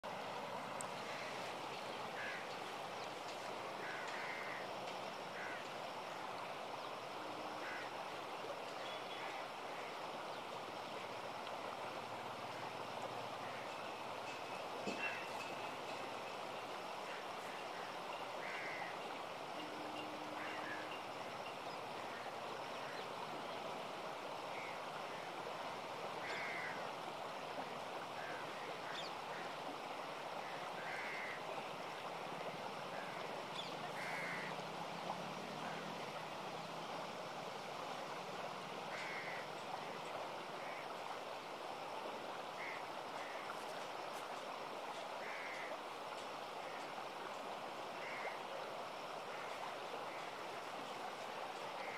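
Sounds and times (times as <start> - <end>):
river rushing over rocks: 0.0 - 51.9.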